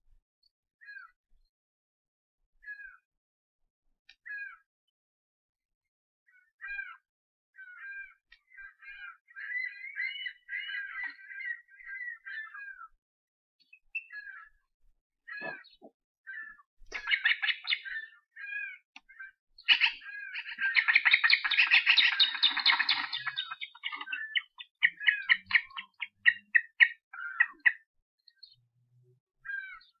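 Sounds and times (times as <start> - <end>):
ospreys chirping: 16.9 - 18.1, 19.6 - 27.8.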